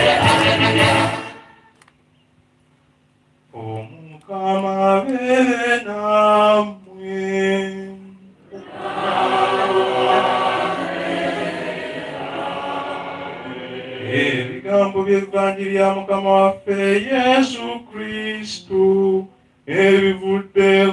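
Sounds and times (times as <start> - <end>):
congregation singing: 0.0 - 1.7, 3.6 - 20.9
solo voice singing: 14.1 - 20.9.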